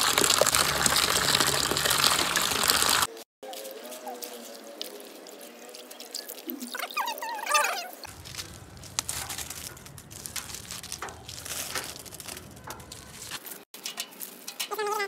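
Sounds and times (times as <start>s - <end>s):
shells crackling onto dry leaves: 0.0s - 6.9s, 8.0s - 15.0s.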